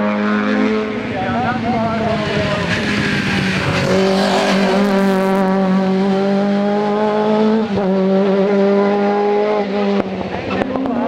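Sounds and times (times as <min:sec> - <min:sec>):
race car engine at high revs: 0:00.0 - 0:11.0.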